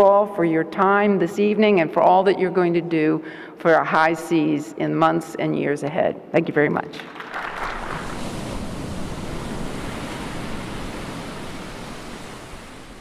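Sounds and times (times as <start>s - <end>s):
audience applauding: 7.0s - 8.2s.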